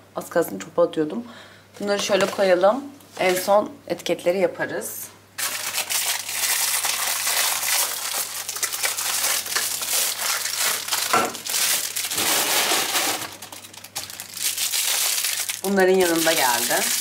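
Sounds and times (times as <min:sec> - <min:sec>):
packaging crinkling: 0:05.4 - 0:17.0.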